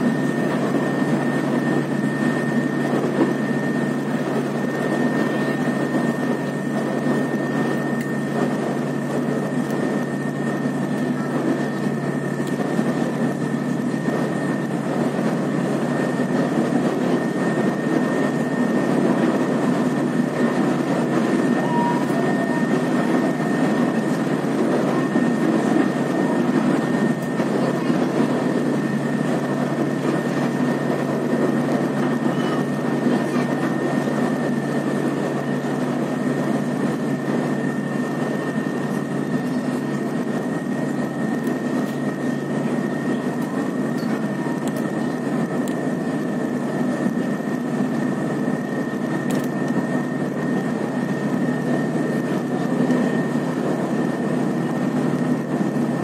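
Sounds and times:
boat engine droning: 0.0 - 56.0
thin high whine: 20.4 - 28.0.

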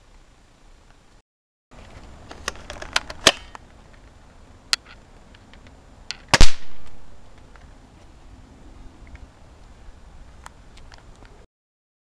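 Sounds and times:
snapper sharp crack: 6.1 - 7.0.

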